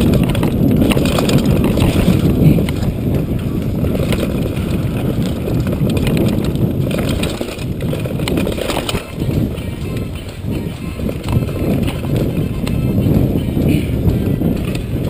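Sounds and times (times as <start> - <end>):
bike rattles and knocks: 0.0 - 15.0
tyres rumbling on dirt: 0.0 - 15.0
wind buffeting microphone: 0.0 - 15.0.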